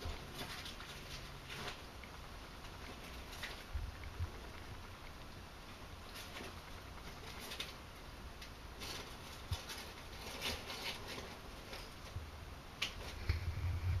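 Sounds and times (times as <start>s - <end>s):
small claws scratching on wood: 6.1s - 12.2s.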